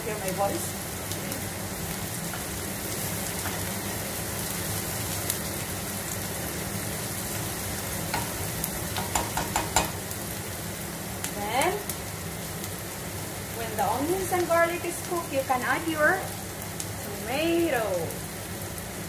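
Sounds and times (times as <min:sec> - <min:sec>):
onion and garlic sizzling in oil: 0:00.0 - 0:19.0
spatula clicking against pan: 0:08.1 - 0:10.0.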